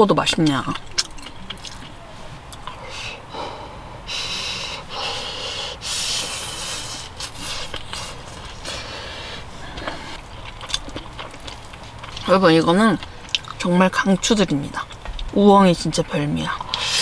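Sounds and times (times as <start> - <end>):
breathy hisses: 2.7 - 10.2.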